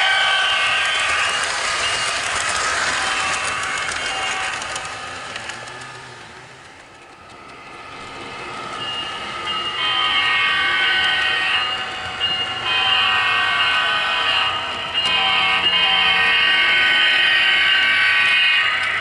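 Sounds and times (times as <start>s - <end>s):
model locomotive horn blasts: 0.0s - 5.8s, 9.7s - 19.0s.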